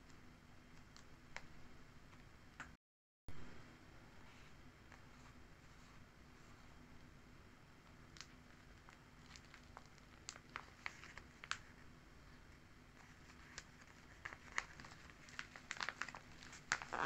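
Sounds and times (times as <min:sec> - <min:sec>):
paper pages crinkling: 0:08.1 - 0:11.9, 0:12.9 - 0:17.0.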